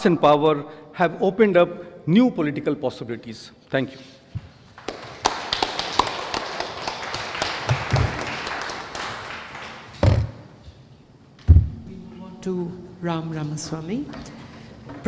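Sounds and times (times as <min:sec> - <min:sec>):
audience applauding: 0:04.8 - 0:10.4.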